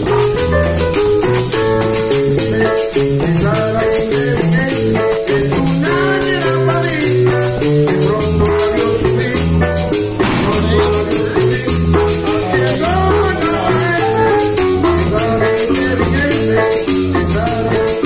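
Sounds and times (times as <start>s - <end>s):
live latin dance music: 0.0s - 18.0s.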